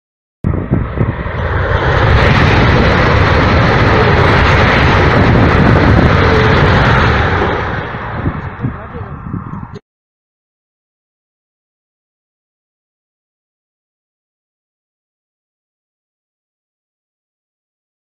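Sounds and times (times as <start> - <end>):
high-speed train passing: 0.4 - 9.8.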